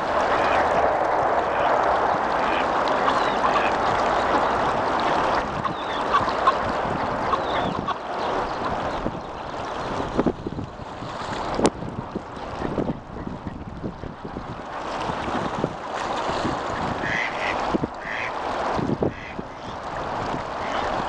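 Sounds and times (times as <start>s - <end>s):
noisy background: 0.0s - 10.4s
ducks quacking: 0.2s - 0.8s, 1.5s - 9.0s, 16.8s - 18.4s, 19.1s - 20.9s
swans honking: 2.3s - 8.8s, 17.0s - 18.4s, 19.1s - 19.8s.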